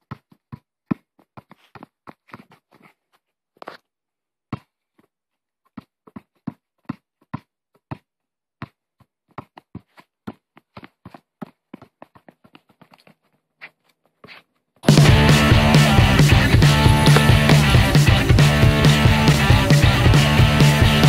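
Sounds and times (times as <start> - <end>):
basketball bouncing on hard court: 15.3 - 19.0.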